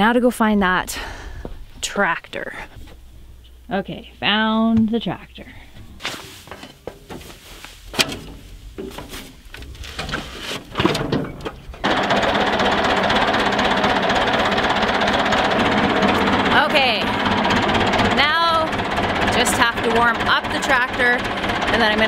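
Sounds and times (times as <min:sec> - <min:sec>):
tractor engine starting and running: 0:05.8 - 0:22.0
knocks and scrapes on tractor: 0:06.0 - 0:22.0.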